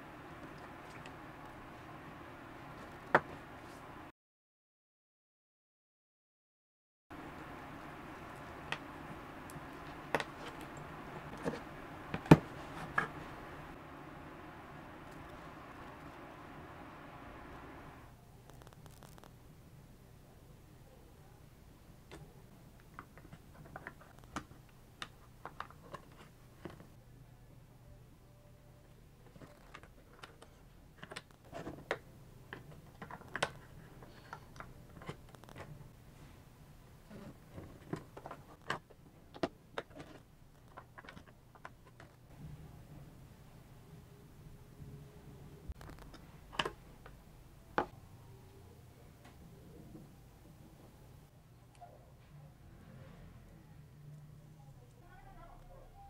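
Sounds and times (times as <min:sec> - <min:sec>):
low hiss: 0:07.1 - 0:22.7.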